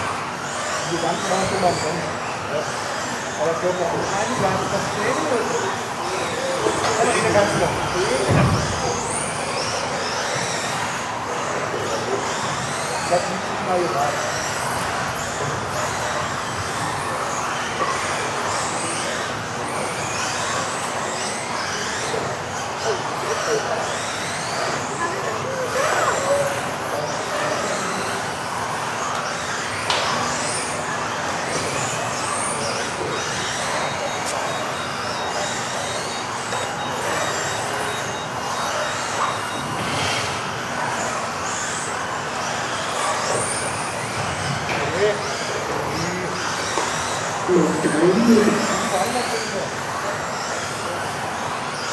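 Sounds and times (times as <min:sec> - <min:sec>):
electric motors whining: 0:00.0 - 0:51.9.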